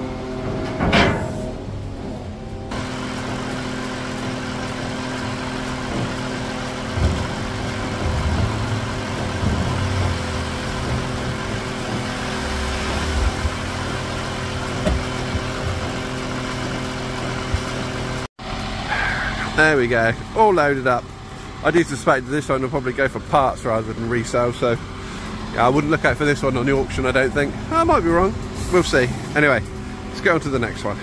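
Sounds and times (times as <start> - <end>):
car transporter engine droning: 0.0 - 31.0
low thuds: 14.7 - 16.1.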